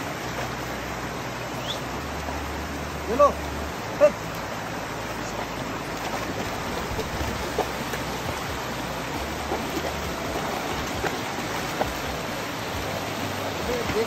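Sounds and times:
rocky stream rushing: 0.0 - 14.0
dog splashing through water: 5.9 - 14.0.

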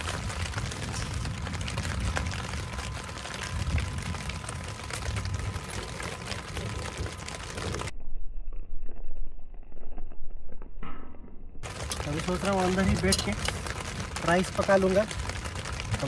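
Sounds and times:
rain pattering on tent: 0.0 - 7.9, 11.6 - 16.0
low rumble: 0.0 - 16.0.

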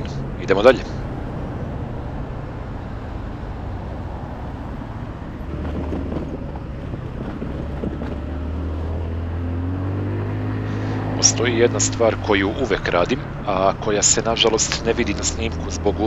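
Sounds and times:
scooter engine hum: 0.0 - 16.0
wind rush on microphone: 1.0 - 11.2.

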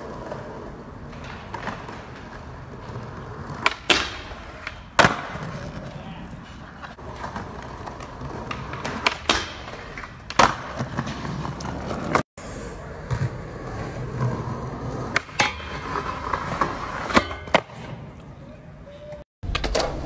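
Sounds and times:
skateboard clacks: 0.0 - 12.2, 19.1 - 20.0
skateboard sliding on metal rail: 0.0 - 18.1
skateboard wheels rolling on concrete: 0.0 - 20.0.

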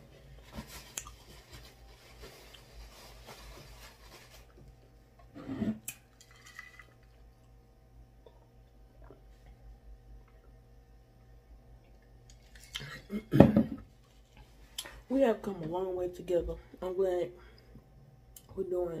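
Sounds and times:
paper napkin rustling: 0.4 - 4.6.

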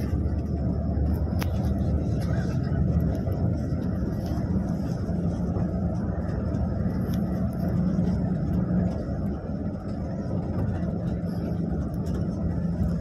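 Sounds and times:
bus engine hum: 0.0 - 13.0
road noise drone: 0.0 - 13.0.

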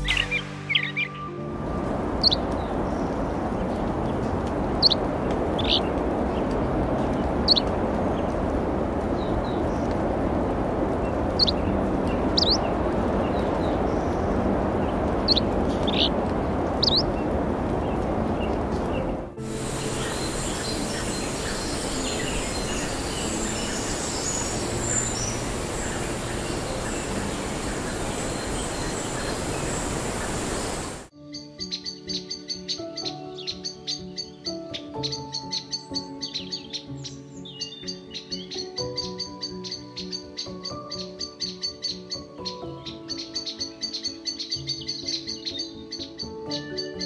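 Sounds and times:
steady rushing background noise: 0.0 - 31.1
bird chip calls: 2.2 - 3.2, 4.1 - 8.3, 11.1 - 16.2, 16.8 - 18.6, 19.7 - 47.0.

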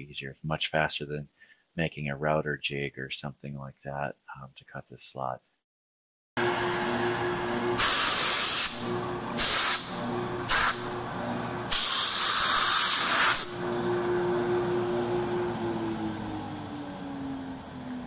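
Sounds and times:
router spindle whine: 13.6 - 18.0.

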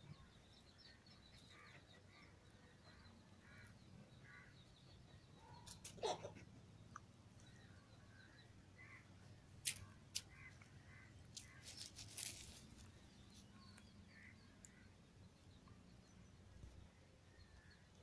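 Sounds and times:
faint bird calls: 0.0 - 15.0.

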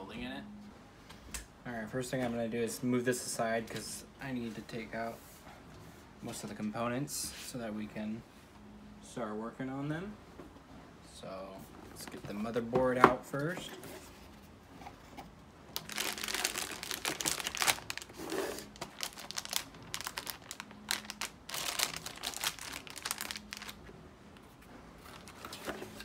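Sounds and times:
plastic bag crinkling: 15.8 - 23.9, 25.0 - 26.0.

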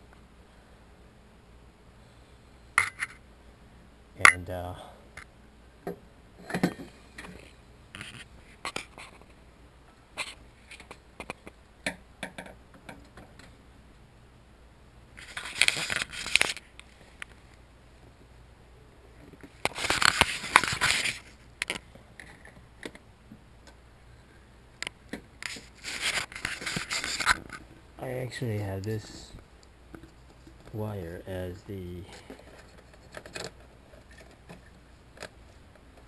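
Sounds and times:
scraping and rustling: 6.4 - 9.4, 15.2 - 17.6, 19.2 - 23.0, 25.4 - 27.9, 32.0 - 36.0.

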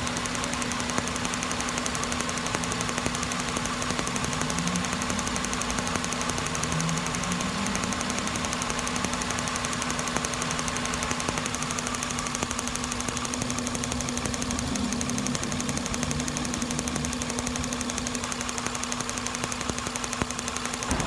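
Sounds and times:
car engine idling: 0.0 - 21.0
spark tester ticking: 0.0 - 21.0.

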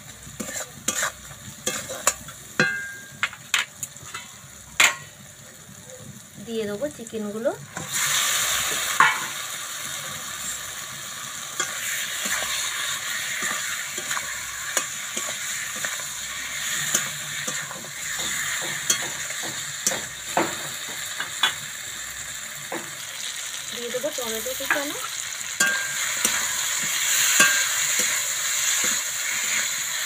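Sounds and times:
chicken sizzling in oil: 0.0 - 30.0
spatula scraping metal pan: 0.4 - 2.8.

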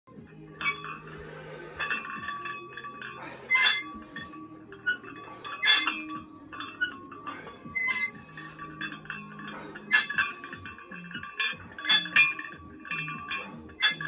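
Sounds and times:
weight plates clinking: 0.1 - 14.0.

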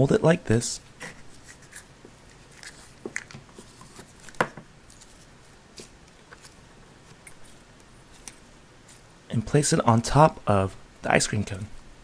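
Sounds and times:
faint rustling of hands: 0.9 - 9.1.

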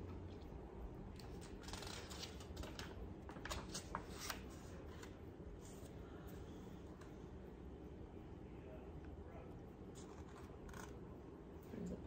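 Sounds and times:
paper pages turning: 1.4 - 6.0, 10.0 - 11.0.

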